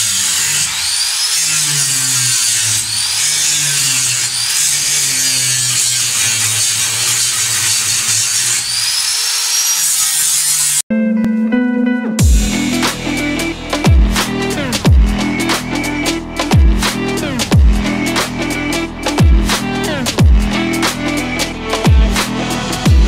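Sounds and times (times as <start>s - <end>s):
angle grinder whine: 0.0s - 10.8s, 12.2s - 23.0s
electronic music: 10.9s - 23.0s.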